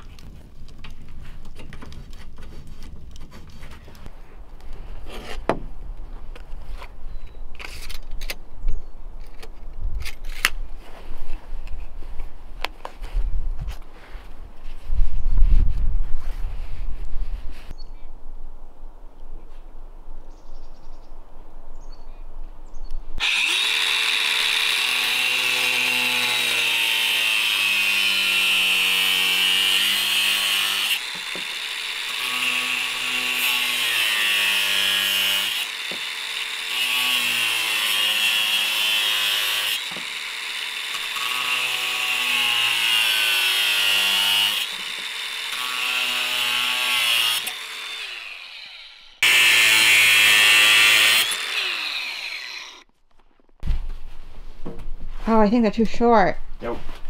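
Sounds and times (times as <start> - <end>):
angle grinder cutting plastic pipe: 23.2 - 52.9.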